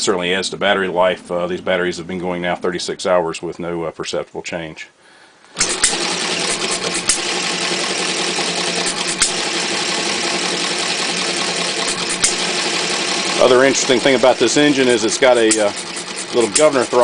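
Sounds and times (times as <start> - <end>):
sharp engine cracks: 5.5 - 17.0
small engine running with rapid clatter: 5.6 - 17.0.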